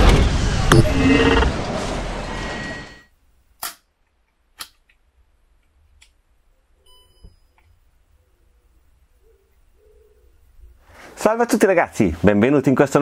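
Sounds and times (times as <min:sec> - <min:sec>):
intro sound: 0:00.4 - 0:03.0
brief electronic tone: 0:00.7 - 0:01.6, 0:02.2 - 0:03.1.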